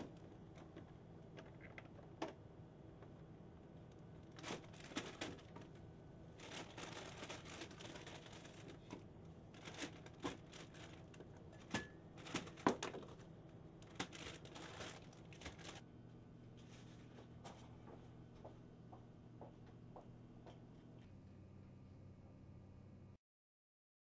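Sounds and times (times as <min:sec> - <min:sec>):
faint low hum: 0:00.0 - 0:23.2
packaging crinkling: 0:03.7 - 0:15.8.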